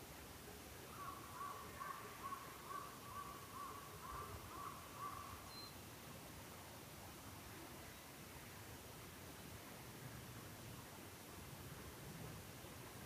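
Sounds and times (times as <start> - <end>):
low steady background hiss: 0.0 - 13.0
crow cawing: 1.0 - 5.3.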